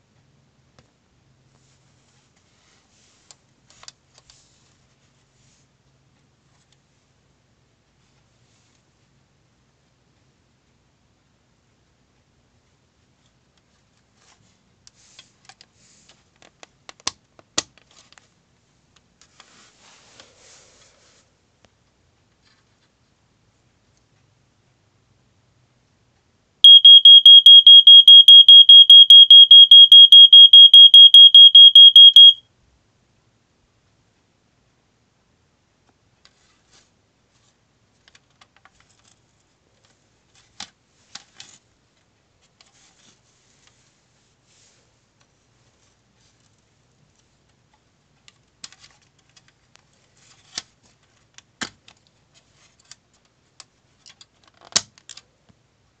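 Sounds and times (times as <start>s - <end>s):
smoke detector rapid high beeping: 26.6s - 32.4s.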